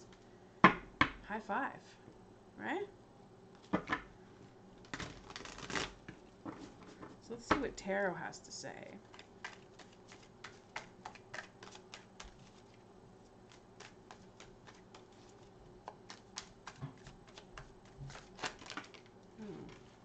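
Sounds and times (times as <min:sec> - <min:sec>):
cards being shuffled: 0:09.0 - 0:12.8, 0:13.4 - 0:20.0.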